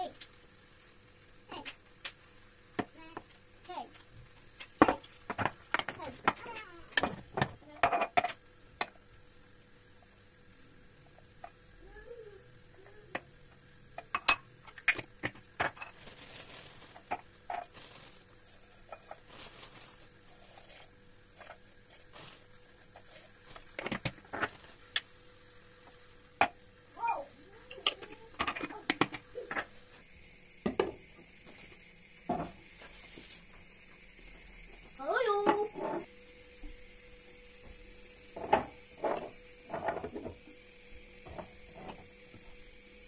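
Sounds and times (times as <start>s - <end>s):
glass jars and lids clinking: 14.0s - 15.0s
dried herbs rustling into jar: 14.7s - 25.1s.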